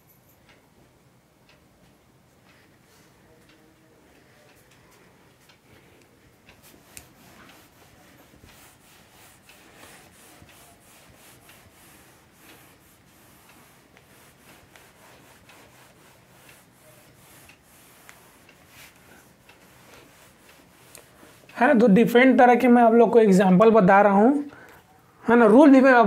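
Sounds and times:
cloth rubbing whiteboard: 0:06.6 - 0:21.8.

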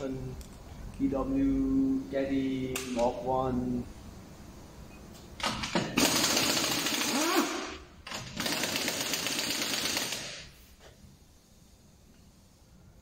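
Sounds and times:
impact wrench hammering: 0:05.5 - 0:10.4.

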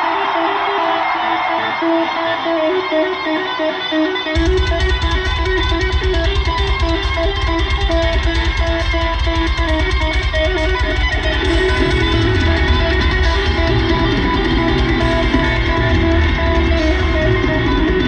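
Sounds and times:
distorted electric guitar riff: 0:00.0 - 0:18.0
live heavy metal band: 0:00.0 - 0:18.0
rapid drum hits: 0:04.4 - 0:18.0.

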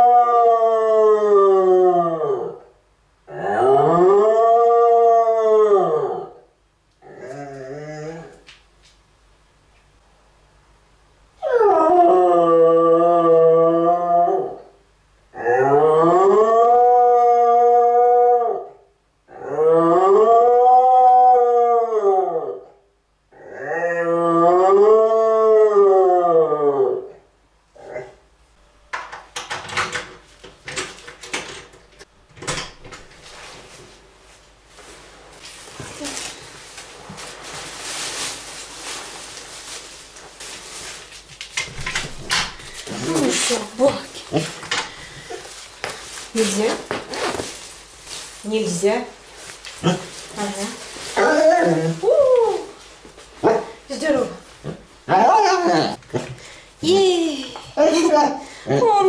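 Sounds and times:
dog howling: 0:00.0 - 0:02.7, 0:03.3 - 0:06.4, 0:11.4 - 0:14.7, 0:15.4 - 0:22.8, 0:23.4 - 0:27.2, 0:49.8 - 0:52.8
clothing rustling: 0:33.1 - 0:55.7
person and dog shuffling: 0:33.1 - 0:59.0.

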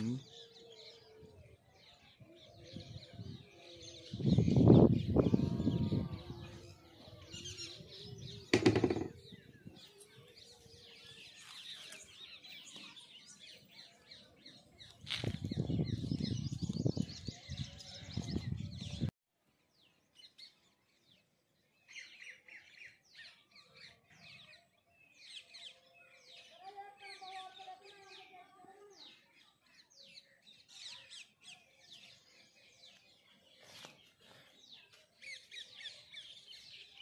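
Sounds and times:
small birds chirping: 0:00.0 - 0:37.0
wind rumbling on microphone: 0:02.5 - 0:09.9, 0:14.8 - 0:19.1.

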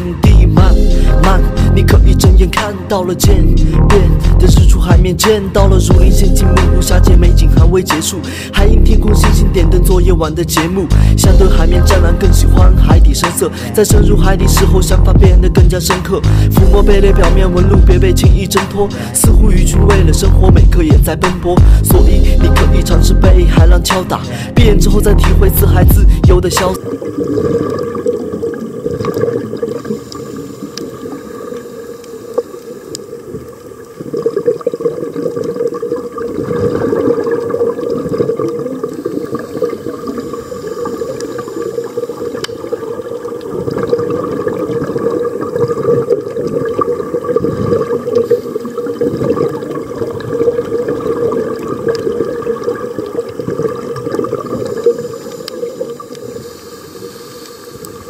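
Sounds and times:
underwater regulator bubbles: 0:00.0 - 0:58.0.

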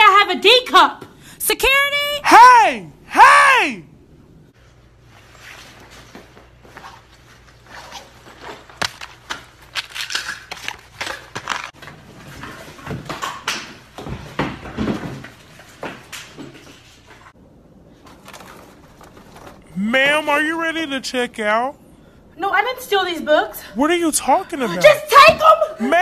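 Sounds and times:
objects rustling and knocking: 0:05.2 - 0:19.8.

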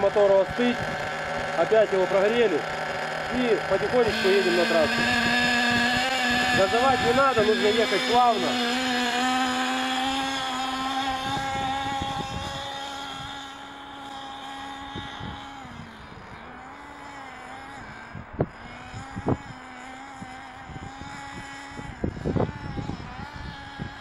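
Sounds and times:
rc nitro engine droning: 0:00.0 - 0:24.0.

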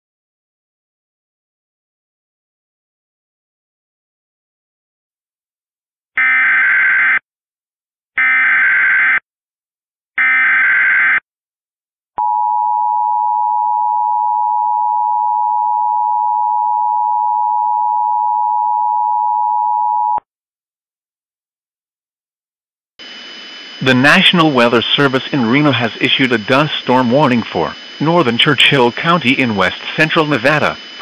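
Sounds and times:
warbling data tones: 0:23.0 - 0:31.0.

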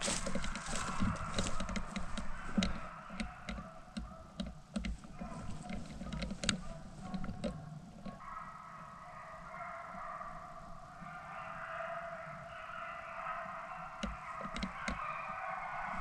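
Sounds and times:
dry leaves crackling underfoot: 0:00.0 - 0:03.0.

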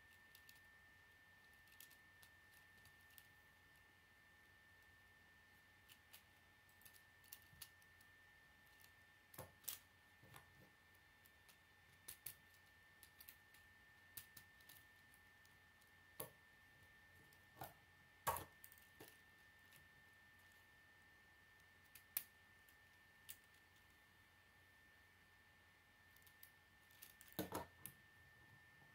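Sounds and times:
plastic toy pieces clicking: 0:05.9 - 0:07.8.

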